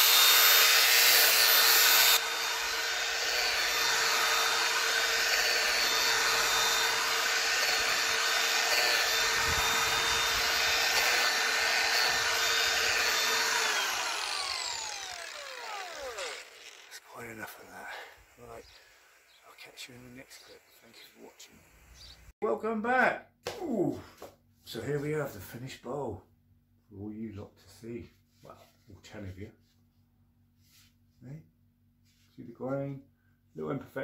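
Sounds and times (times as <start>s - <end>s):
angle grinder sanding wood: 0.0s - 22.3s.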